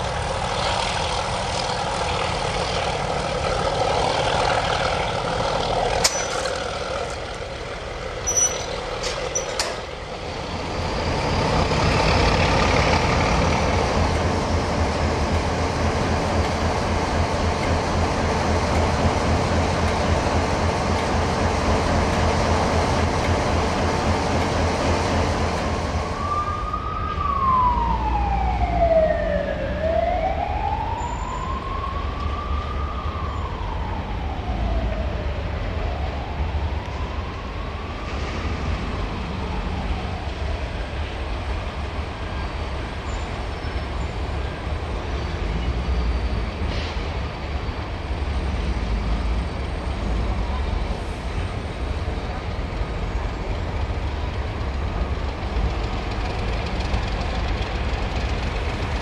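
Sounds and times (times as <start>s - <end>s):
diesel locomotive engine rumble: 0.0s - 59.0s
siren wailing: 26.0s - 38.1s.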